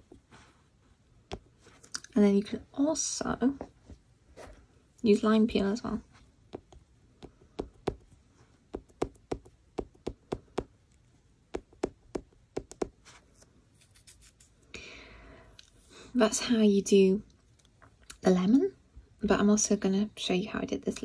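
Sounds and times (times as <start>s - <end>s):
pencil tapping on paper: 6.5s - 10.8s, 11.5s - 13.1s
soft paper rustle: 13.0s - 14.7s.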